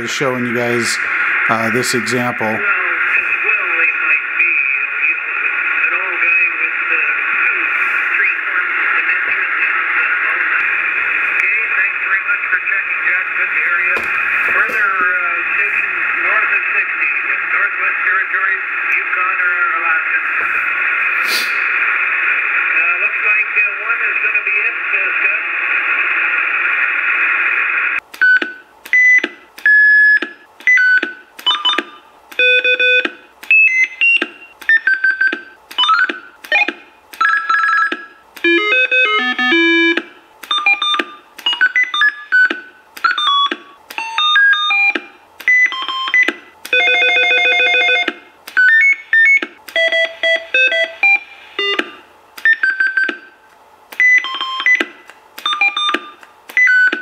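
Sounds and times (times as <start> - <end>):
radio electronic beep tones: 47.9 - 53.3, 55.5 - 57.0.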